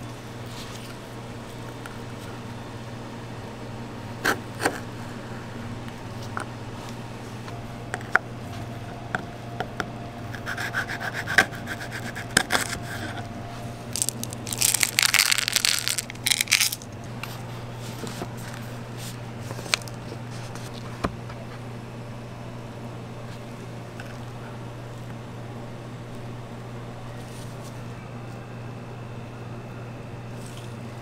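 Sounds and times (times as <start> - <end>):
steady low hum: 0.0 - 31.0
chocolate chips rattling into plastic: 14.0 - 16.9, 19.7 - 20.0.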